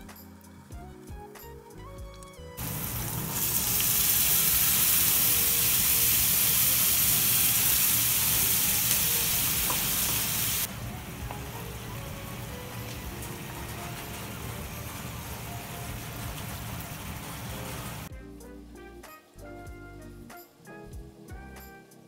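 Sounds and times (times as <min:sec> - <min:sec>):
puree sizzling in a hot pan: 0:02.6 - 0:18.1.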